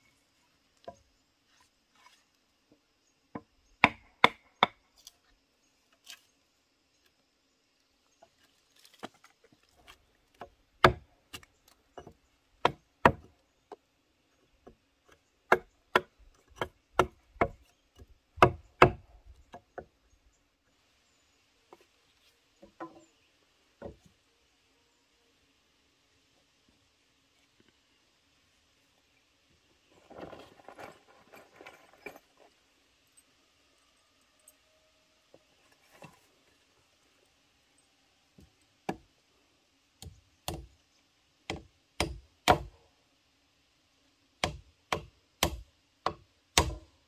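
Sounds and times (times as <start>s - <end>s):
hand tool striking bamboo: 10.4s - 11.4s, 18.4s - 19.0s, 41.5s - 42.7s, 44.4s - 46.9s.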